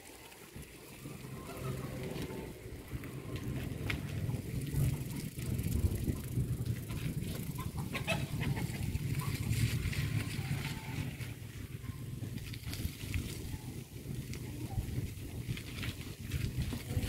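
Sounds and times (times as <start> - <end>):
bicycle riding rumble: 0.0 - 17.0
chickens clucking: 7.4 - 9.5.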